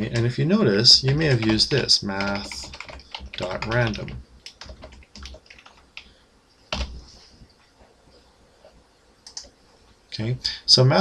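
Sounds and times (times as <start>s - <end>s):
computer keyboard typing: 0.9s - 6.1s, 6.7s - 7.0s, 9.2s - 9.5s.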